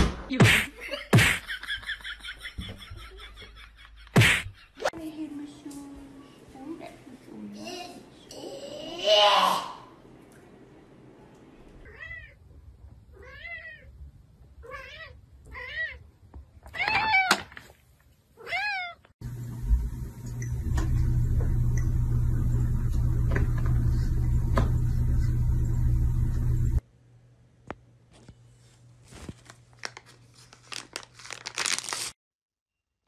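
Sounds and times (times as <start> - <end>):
cat meowing: 11.8 - 12.4, 13.2 - 13.9, 14.6 - 16.0, 18.4 - 19.1
loud steady hum: 19.2 - 26.8.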